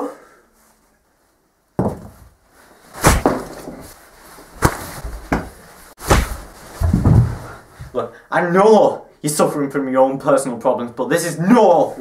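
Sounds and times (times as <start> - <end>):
heavy blows and thuds: 4.6 - 8.0.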